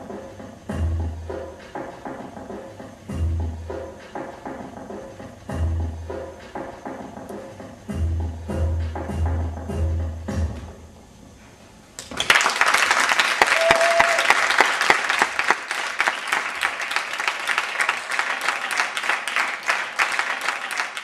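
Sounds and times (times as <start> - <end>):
music with low beat: 0.0 - 10.9
audience applause: 12.0 - 21.0.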